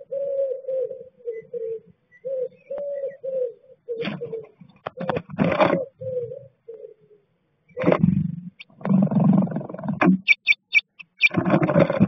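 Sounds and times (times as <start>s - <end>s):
pigeon cooing: 0.0s - 12.0s
bird scrabbling in nest box: 4.0s - 5.9s, 11.1s - 12.0s.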